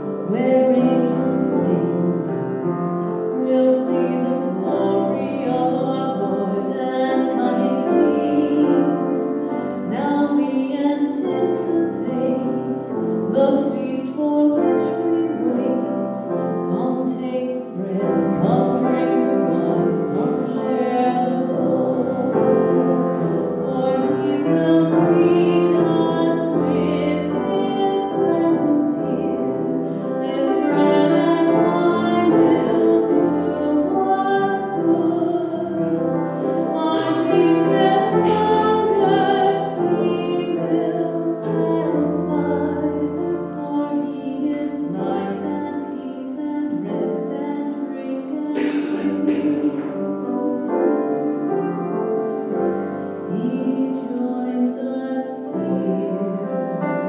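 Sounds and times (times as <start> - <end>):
piano accompaniment: 0.0 - 57.0
voices singing church music: 14.5 - 47.3, 48.2 - 57.0.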